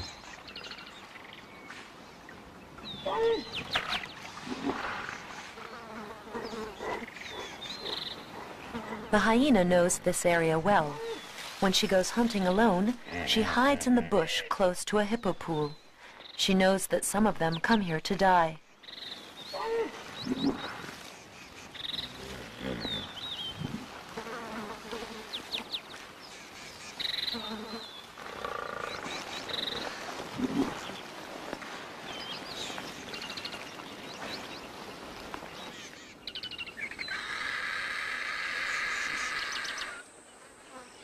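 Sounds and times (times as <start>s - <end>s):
low animal calls: 21.8s - 23.9s.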